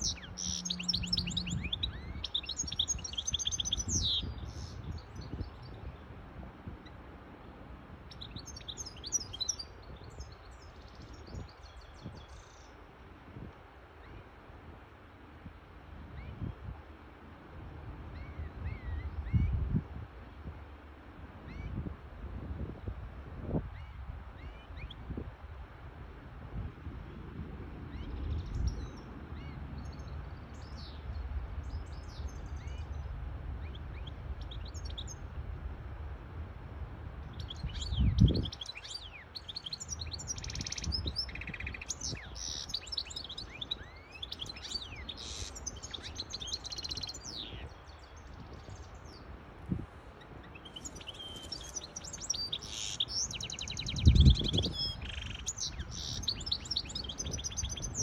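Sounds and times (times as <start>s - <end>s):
bird twittering song: 0.0s - 7.0s, 8.1s - 12.9s, 18.1s - 19.8s, 23.6s - 25.2s, 27.8s - 35.3s, 37.2s - 58.0s.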